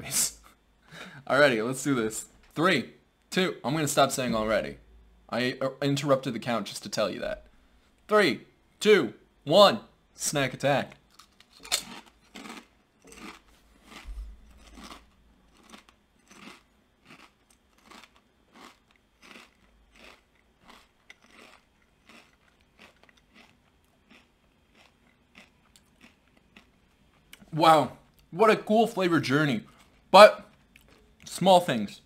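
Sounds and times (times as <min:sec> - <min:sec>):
potato chips crunching: 0:11.0 - 0:27.5.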